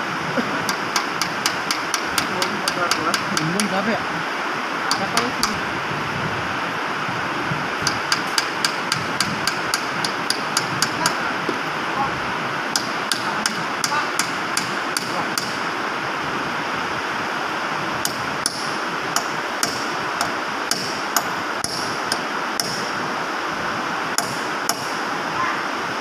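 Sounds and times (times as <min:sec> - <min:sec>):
hammer tapping on metal: 0:00.7 - 0:03.8, 0:04.9 - 0:05.6, 0:07.8 - 0:11.6, 0:12.7 - 0:15.6, 0:18.0 - 0:22.9, 0:24.2 - 0:25.0.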